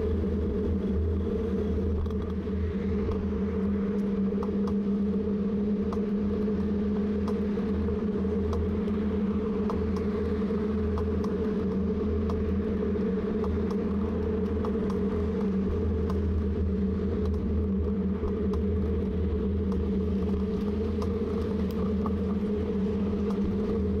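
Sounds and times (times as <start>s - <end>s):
low hum and rumble: 0.0s - 24.0s
faint ticks: 5.8s - 7.5s, 8.4s - 9.0s, 9.6s - 16.3s, 17.2s - 18.7s, 23.0s - 23.8s.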